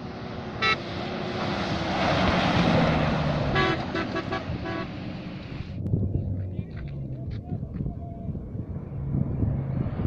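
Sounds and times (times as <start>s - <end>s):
jeep passing at speed: 0.0s - 10.0s
horn toots: 0.6s - 0.8s, 3.5s - 5.0s.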